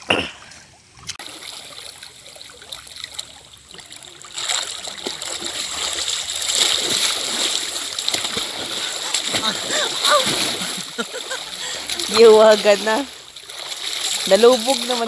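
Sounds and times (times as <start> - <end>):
water splashing and swirling: 0.0 - 15.0.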